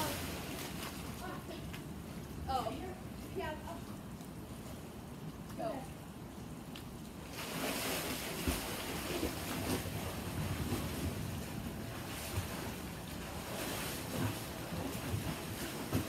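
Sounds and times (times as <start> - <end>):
swimmers splashing in pool water: 7.2 - 16.0.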